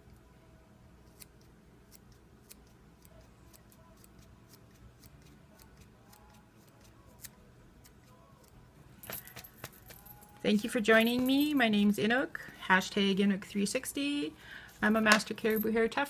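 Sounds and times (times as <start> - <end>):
scissors snipping hair: 1.0 - 10.1.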